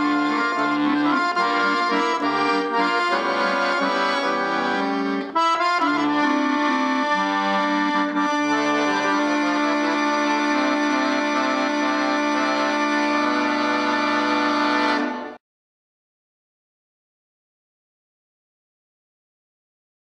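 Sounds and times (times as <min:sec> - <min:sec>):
piano accordion playing a tune: 0:00.0 - 0:15.4.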